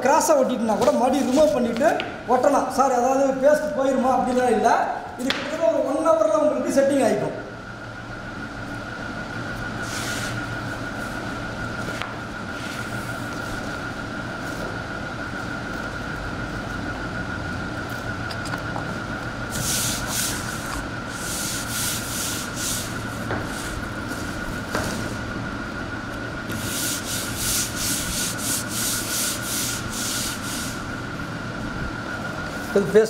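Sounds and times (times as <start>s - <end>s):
steady high-pitched hum: 0.0s - 33.0s
brushing strokes: 19.5s - 24.3s, 26.5s - 30.9s
hands rubbing foam sheet: 26.5s - 30.8s.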